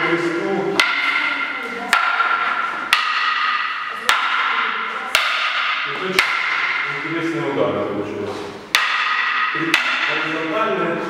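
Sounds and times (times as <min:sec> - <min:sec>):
wooden sticks striking: 0:00.0 - 0:07.5, 0:08.2 - 0:11.0.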